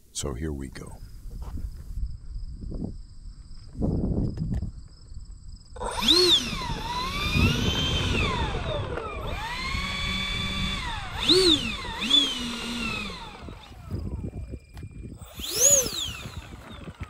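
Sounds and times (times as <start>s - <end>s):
electric ducted fans whining: 5.8s - 17.0s.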